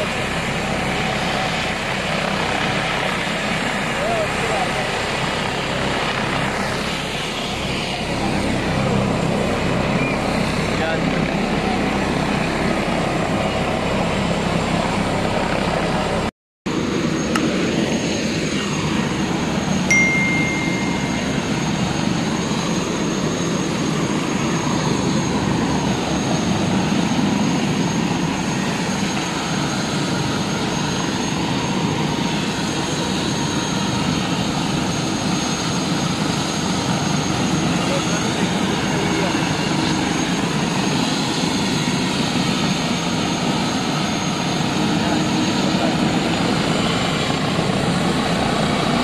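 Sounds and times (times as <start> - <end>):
helicopter engine running: 0.0 - 49.0
thin high whine: 19.8 - 22.7
short high beep: 19.9 - 21.6.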